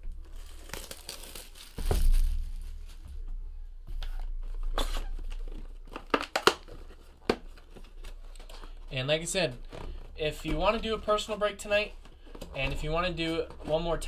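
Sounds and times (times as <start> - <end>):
plastic wrap crinkling and tearing: 0.1 - 3.0, 4.6 - 8.7.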